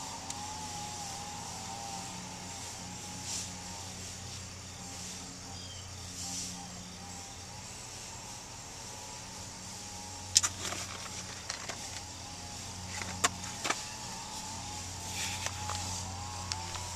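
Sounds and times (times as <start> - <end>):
low hum inside vehicle cab: 0.0 - 16.9.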